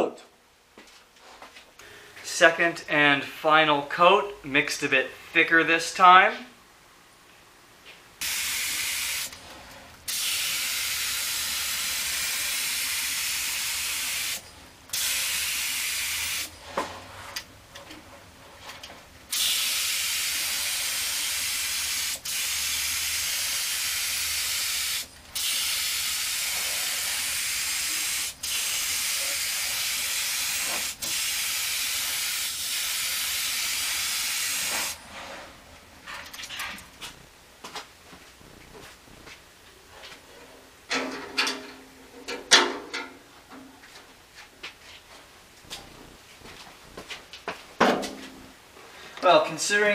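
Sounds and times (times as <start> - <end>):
spray gun hissing: 8.2 - 9.3, 10.1 - 16.5, 19.3 - 35.0.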